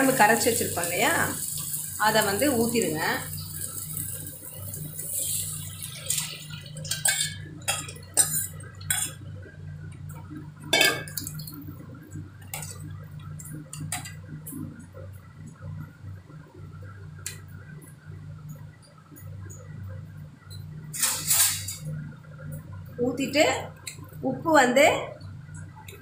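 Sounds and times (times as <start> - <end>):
low steady hum: 0.0 - 26.0
ladle stirring and clinking on pot: 6.0 - 9.2, 10.7 - 11.3.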